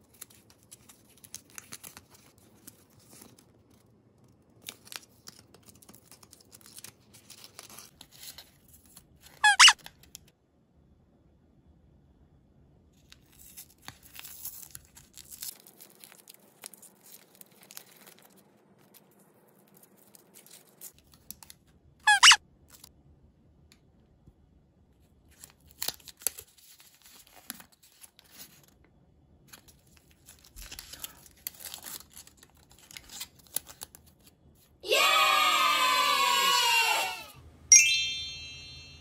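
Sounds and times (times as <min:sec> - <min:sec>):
foil wrapper crinkling: 0:00.0 - 0:09.4, 0:13.1 - 0:21.6, 0:29.5 - 0:34.3
paper wrappers crinkling and tearing: 0:00.0 - 0:10.2, 0:13.1 - 0:21.6, 0:25.2 - 0:28.8, 0:29.5 - 0:34.4
high wavering tone: 0:37.7 - 0:39.0.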